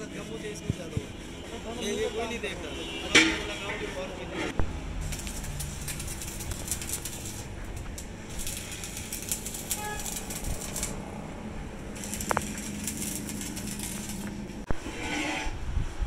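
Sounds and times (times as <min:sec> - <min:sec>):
electric arc welding crackling: 0:04.6 - 0:14.8.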